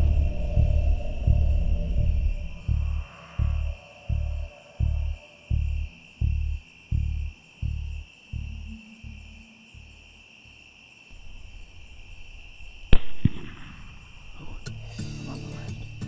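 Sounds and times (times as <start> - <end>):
music: 0.0 - 10.7, 14.4 - 16.0
insects chirring: 0.0 - 16.0
rifle shot: 12.9 - 14.4.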